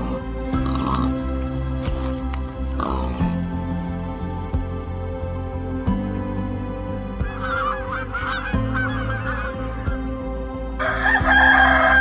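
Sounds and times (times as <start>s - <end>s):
soft background music: 0.0s - 12.0s
goose honking: 7.2s - 10.1s
rooster crowing: 10.8s - 12.0s.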